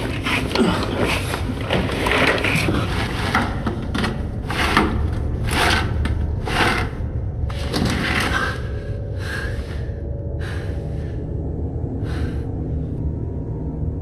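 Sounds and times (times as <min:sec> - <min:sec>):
low steady rumble: 0:03.7 - 0:14.0
rasping scrapes in a duct: 0:04.4 - 0:07.0.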